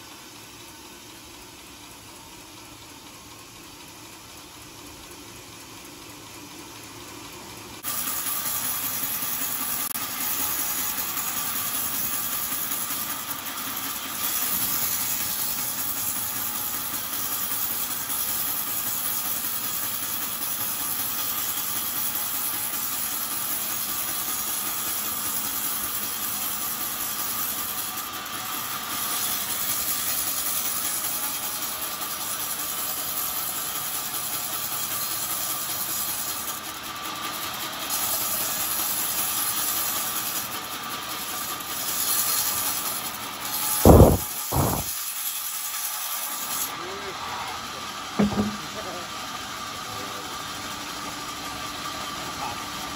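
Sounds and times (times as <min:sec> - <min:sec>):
band saw cutting wood: 0:07.8 - 0:36.7, 0:37.4 - 0:46.8.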